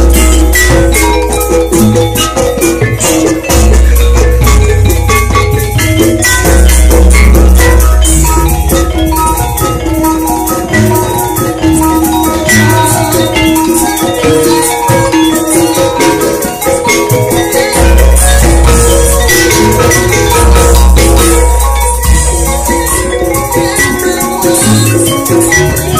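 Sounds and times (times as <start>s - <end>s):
drums: 0.0s - 25.9s
metallophones hammered fast: 0.0s - 25.9s.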